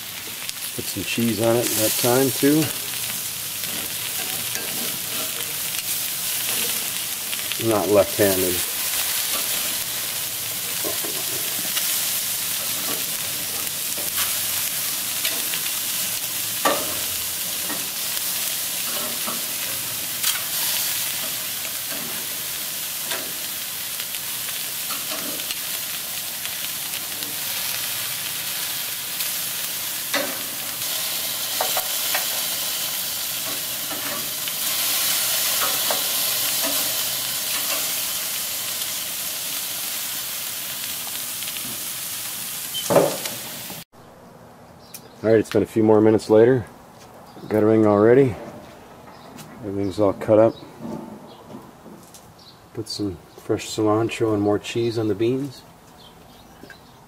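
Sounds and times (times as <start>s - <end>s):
meat sizzling on a grill: 0.0s - 43.9s
vegetables frying in a skillet: 0.0s - 43.9s.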